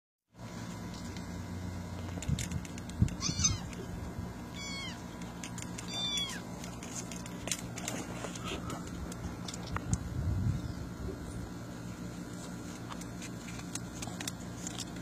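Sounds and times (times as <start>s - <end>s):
kittens mewing: 3.0s - 6.6s.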